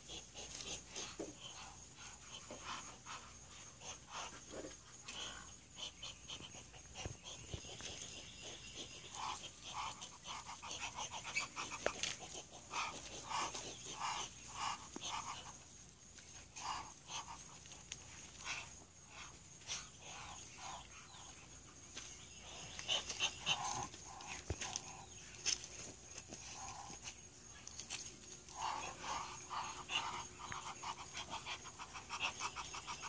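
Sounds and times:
high insect drone: 0.0 - 33.0.

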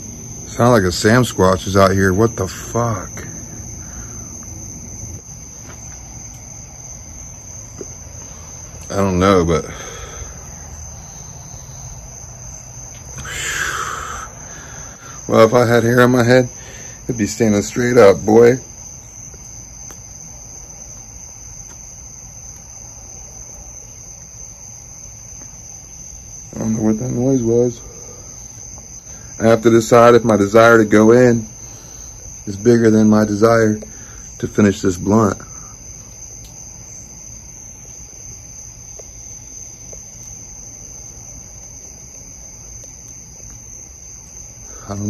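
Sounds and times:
crickets trilling: 0.0 - 45.0
night insects chorus: 0.0 - 45.0.

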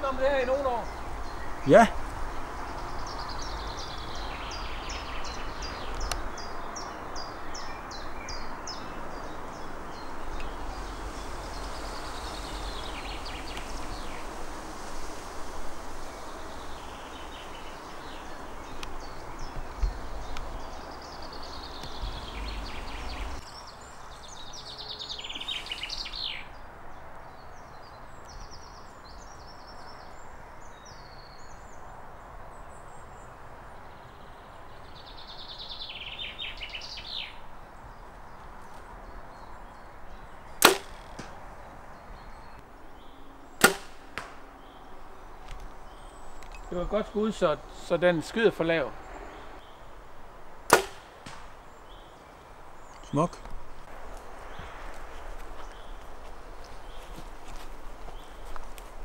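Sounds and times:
songbirds singing: 0.0 - 59.0.

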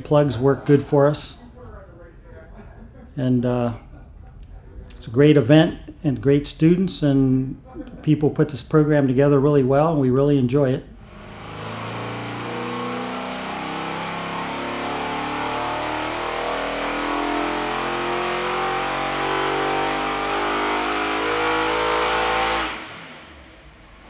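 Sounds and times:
engine revving at full throttle: 11.0 - 24.0.

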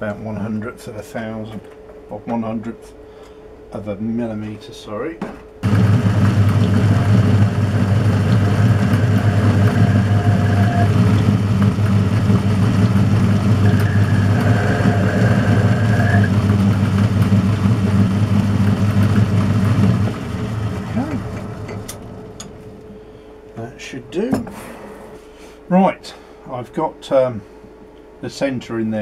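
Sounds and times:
faint high whine: 5.6 - 17.0
drill cutting into spinning metal: 5.6 - 18.2
metal lathe motor hum: 5.6 - 23.0.

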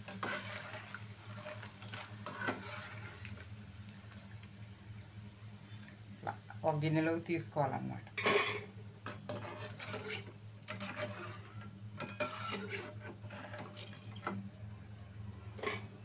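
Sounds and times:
skimmer scraping a frying pan: 0.0 - 3.4, 8.2 - 14.4, 15.5 - 16.0
oil sizzling: 0.0 - 16.0.

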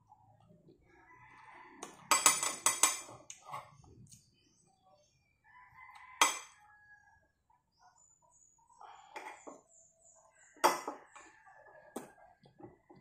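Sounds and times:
rooster crowing: 5.5 - 7.2.

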